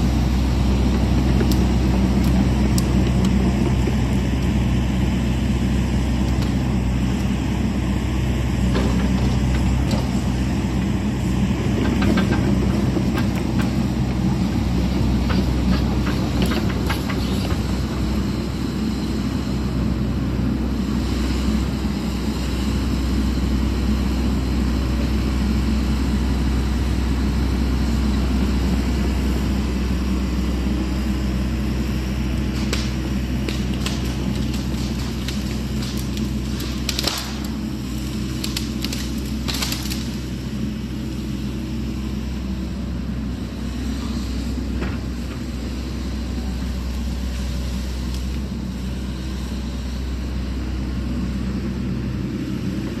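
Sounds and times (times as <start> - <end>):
excavator diesel engine running: 0.0 - 53.0
sharp cracks and clicks: 32.5 - 40.2.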